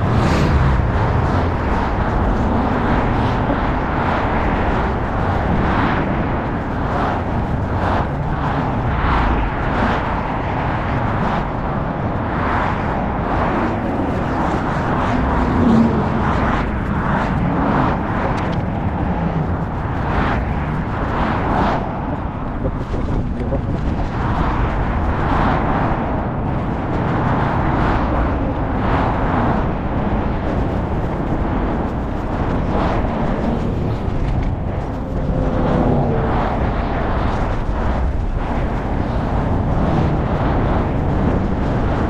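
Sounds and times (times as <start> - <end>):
skateboard wheels rolling on pavement: 0.0 - 42.0.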